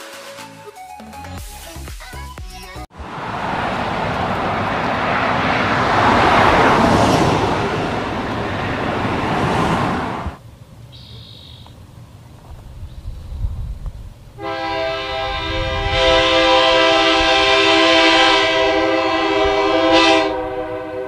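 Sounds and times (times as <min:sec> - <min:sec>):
loud rushing noise: 0:02.9 - 0:10.4.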